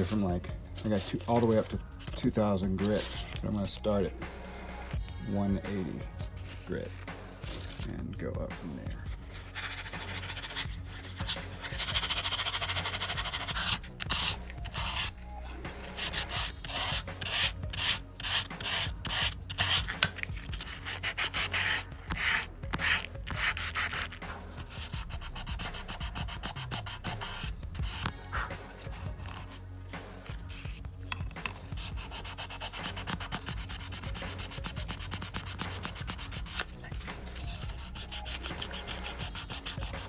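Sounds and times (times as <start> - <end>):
sandpaper rasping on steel: 9.4 - 15.1, 15.8 - 28.1, 31.7 - 40.0.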